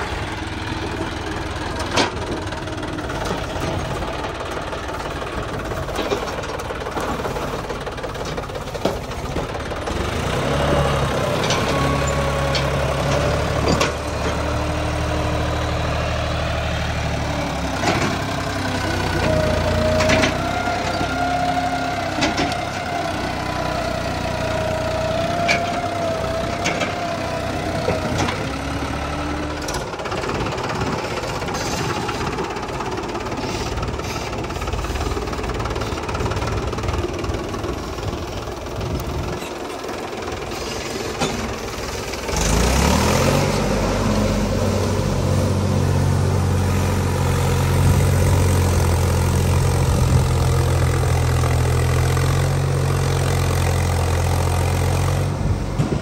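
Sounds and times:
tractor diesel engine under load: 0.0s - 56.0s
blade scraping soil: 31.0s - 32.3s, 33.2s - 36.0s, 40.5s - 44.9s.

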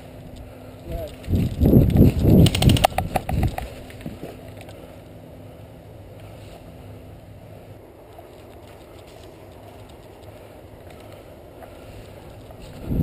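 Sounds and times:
footsteps rustling dry leaves: 8.0s - 11.2s.

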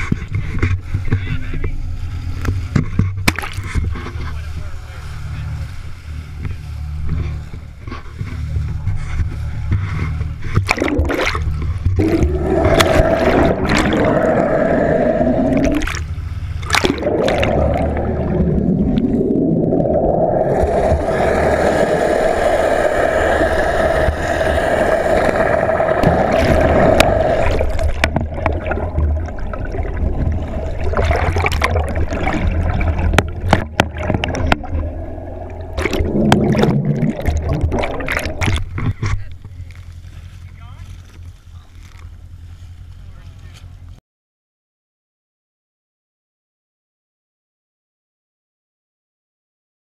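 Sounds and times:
water rushing and gurgling: 0.0s - 42.6s
steady low drone: 0.0s - 44.0s
humming tone: 1.7s - 38.8s.

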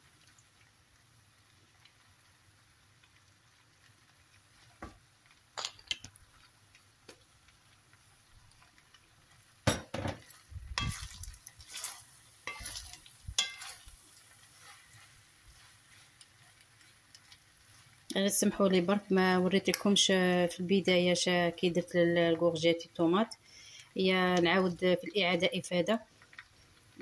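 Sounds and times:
spatula scraping frying pan: 10.2s - 18.1s.

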